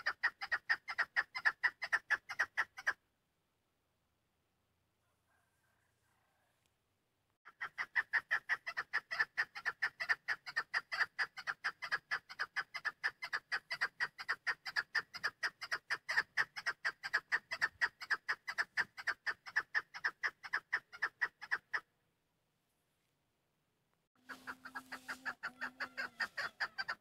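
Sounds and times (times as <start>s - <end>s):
partridge clucking call: 0.0s - 3.0s, 7.5s - 21.9s, 24.2s - 27.0s.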